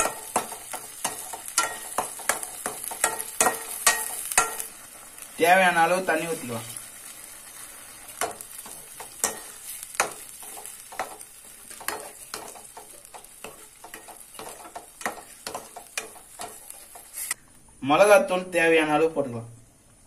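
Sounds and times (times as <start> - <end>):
gravy sizzling: 0.0 - 17.4
spatula scraping a metal pan: 7.9 - 17.4.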